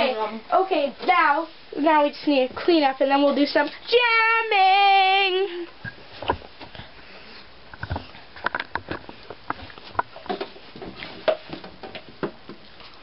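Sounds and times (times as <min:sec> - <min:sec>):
rustling of handled things: 0:05.7 - 0:13.0
objects knocking and tapping: 0:07.7 - 0:12.7.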